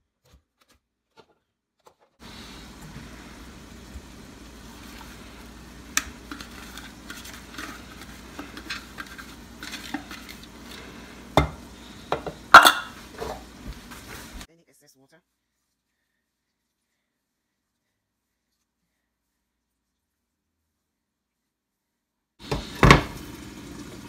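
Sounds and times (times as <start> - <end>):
cabbage rustling: 2.2 - 12.0, 12.6 - 14.5.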